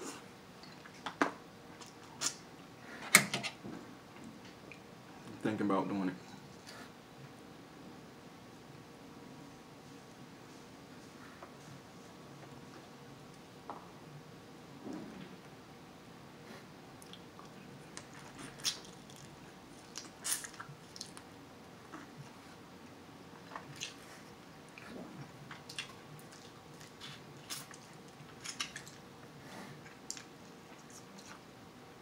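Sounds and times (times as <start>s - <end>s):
chewing: 17.0s - 22.5s, 23.4s - 31.4s.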